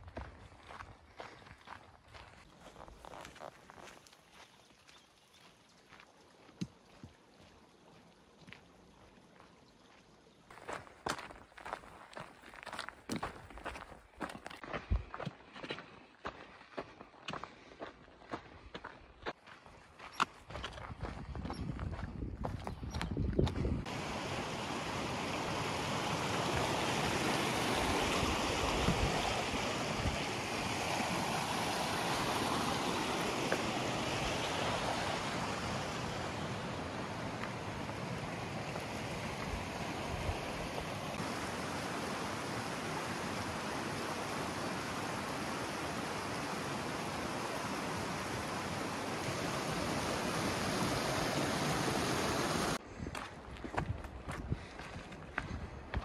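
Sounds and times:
stream flowing: 0:02.4 - 0:14.8, 0:23.8 - 0:52.8.

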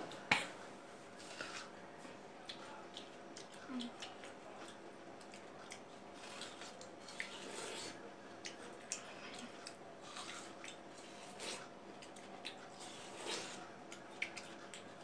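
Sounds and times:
lip smacks and chewing: 0:02.4 - 0:15.0
slurps: 0:06.2 - 0:11.7, 0:12.6 - 0:14.6.

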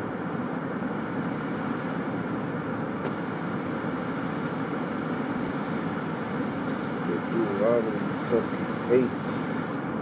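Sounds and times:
steady low rumbling: 0:00.0 - 0:10.0.

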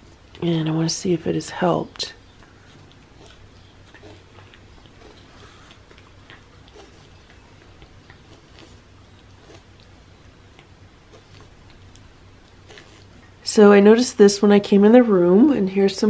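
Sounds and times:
low steady hum: 0:00.0 - 0:16.0
cat licking and chewing: 0:02.2 - 0:13.4.

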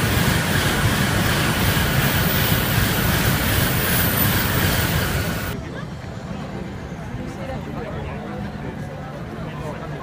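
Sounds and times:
high-speed train rushing past: 0:00.0 - 0:10.0.

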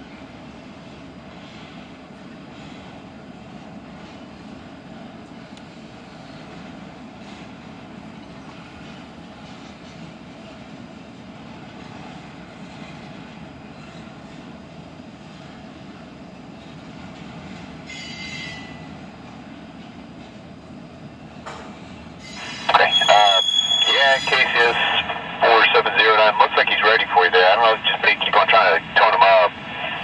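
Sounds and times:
freight train wheels rumbling: 0:00.0 - 0:30.0
high-pitched wheel squeal: 0:22.2 - 0:24.3.

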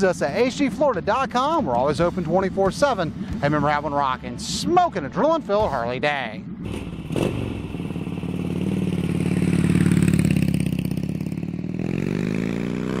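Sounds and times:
motorcycle engine revving: 0:06.4 - 0:13.0.

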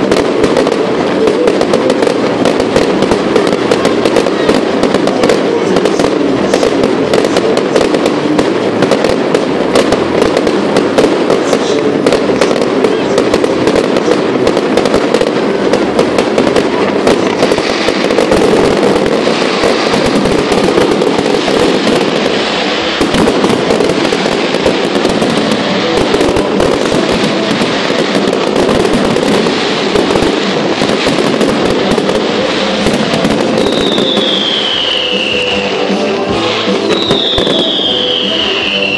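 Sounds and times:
fireworks bangs and crackling: 0:00.0 - 0:38.9
falling firework whistle: 0:17.4 - 0:38.9.

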